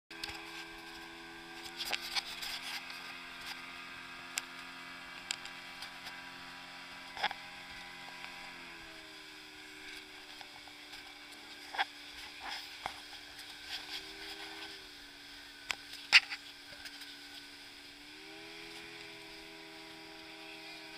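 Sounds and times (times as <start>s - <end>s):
motorboat engine droning: 0.1s - 20.9s.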